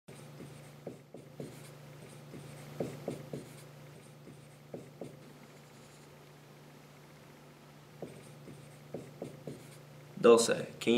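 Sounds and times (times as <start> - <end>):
marker squeaking on whiteboard: 0.1 - 6.1, 8.0 - 9.9
faint low hum: 0.1 - 10.9.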